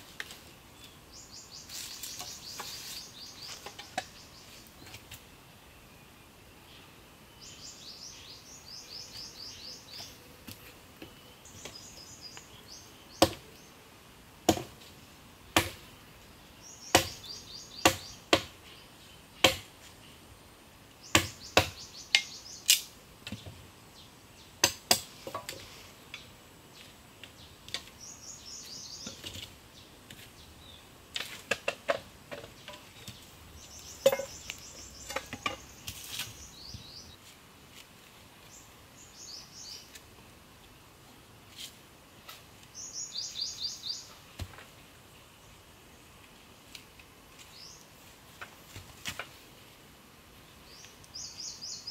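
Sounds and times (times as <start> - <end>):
machete chopping bamboo: 13.2 - 13.4, 14.5 - 14.8, 15.6 - 15.8, 16.9 - 17.2, 17.8 - 18.6, 19.4 - 19.7, 21.1 - 22.9, 24.6 - 25.5.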